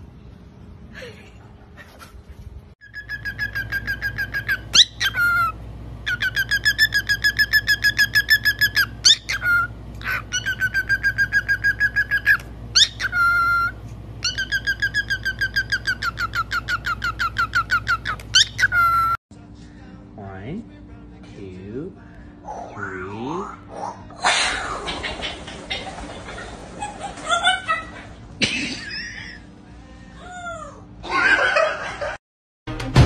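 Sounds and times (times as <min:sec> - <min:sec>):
cockatiel chirping rapidly: 0:02.8 - 0:19.1.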